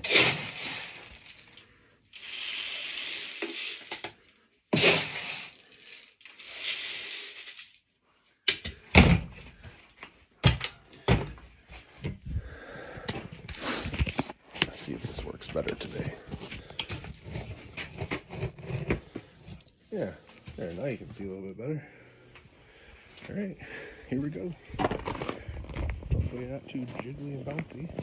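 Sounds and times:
pellets pouring and rustling: 0.0s - 7.8s
bins knocking and thumping: 10.4s - 12.3s.

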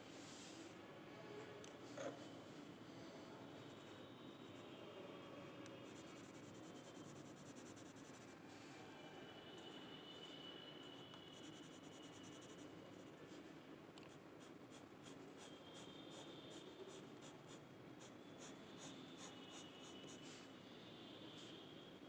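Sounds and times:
pen scratching on paper: 5.8s - 8.3s, 11.4s - 13.1s, 14.1s - 20.3s.

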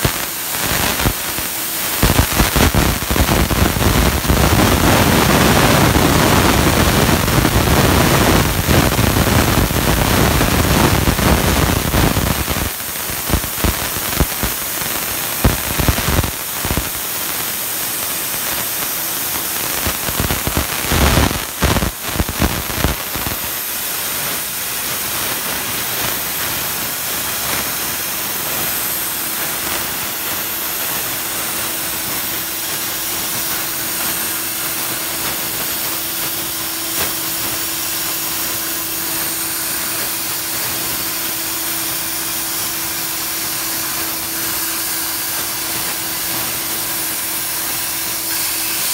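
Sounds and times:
plasma torch cutting steel: 0.0s - 48.9s.

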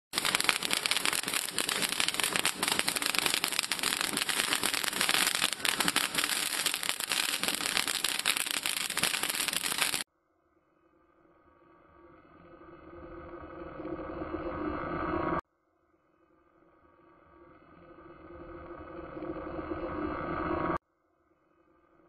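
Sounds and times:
film crackle and hiss: 0.1s - 10.0s.

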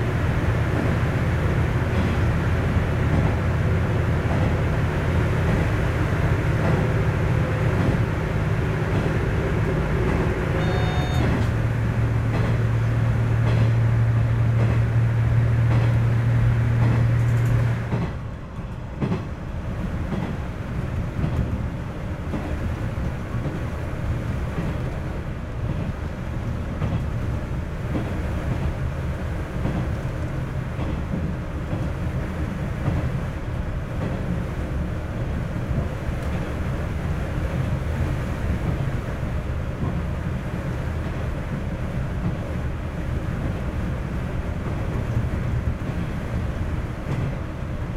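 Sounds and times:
diesel railcar engine drone: 0.0s - 47.9s
wheels on rails: 8.7s - 19.3s.

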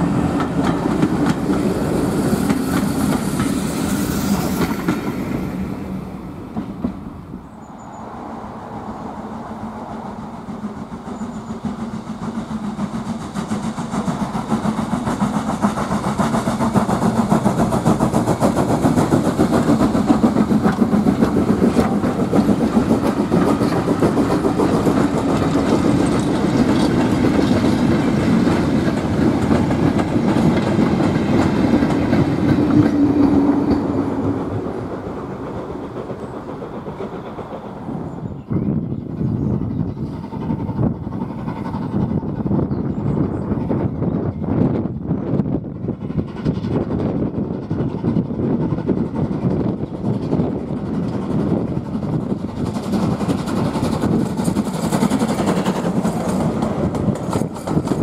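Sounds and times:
wheels clattering over rail joints: 10.3s - 38.4s, 46.1s - 58.0s.

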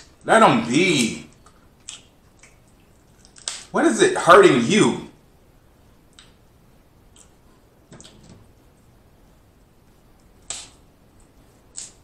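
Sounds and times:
crab shell cracking: 1.3s - 3.8s, 10.2s - 10.8s, 11.7s - 12.0s.

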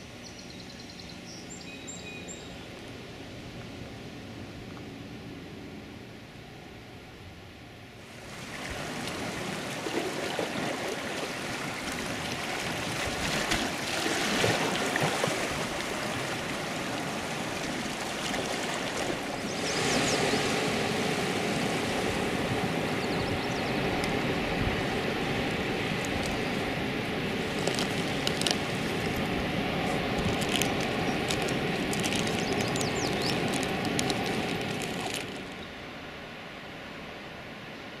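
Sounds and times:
sea water rushing on rocky shore: 8.1s - 35.5s.

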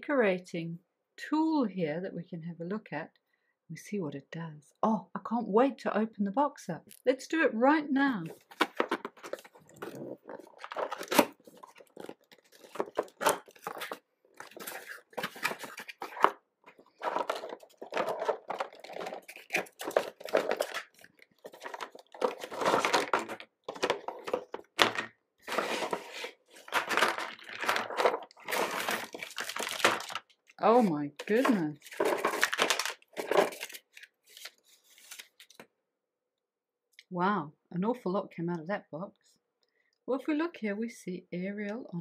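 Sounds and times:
plastic crinkling: 8.3s - 35.6s
cardboard box being torn open: 9.3s - 16.2s, 17.1s - 24.4s, 26.6s - 30.2s, 31.3s - 33.8s
plastic parts tipping onto table: 22.3s - 25.1s.

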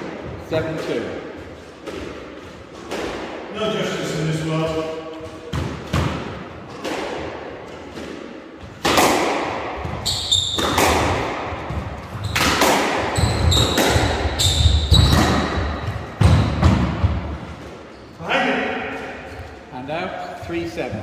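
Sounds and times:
squash ball hitting rackets and walls: 0.0s - 17.9s
shoes squeaking on wooden floor: 9.8s - 18.3s.

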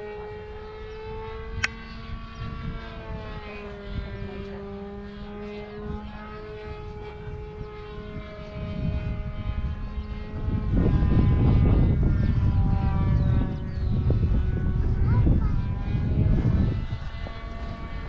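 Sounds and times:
model airplane motor buzzing: 0.0s - 18.0s
wind noise rumble: 0.6s - 5.0s, 5.7s - 18.0s.

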